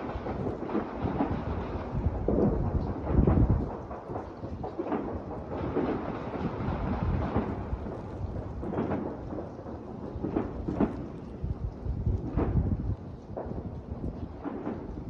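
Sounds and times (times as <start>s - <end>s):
fireworks going off: 0.0s - 15.0s.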